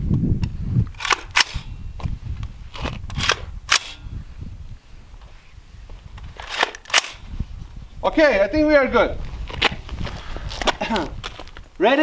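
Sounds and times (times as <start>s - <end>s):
guns clicking and clacking: 1.0s - 1.6s, 6.4s - 7.2s.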